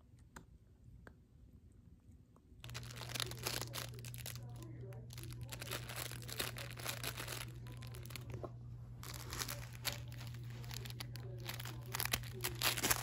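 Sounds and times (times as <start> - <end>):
plush toy crinkling: 2.6 - 13.0.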